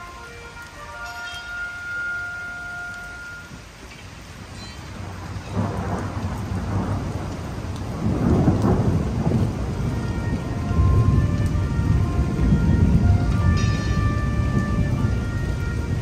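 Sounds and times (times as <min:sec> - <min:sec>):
rain: 0:00.0 - 0:16.0
rolling thunder: 0:04.2 - 0:16.0.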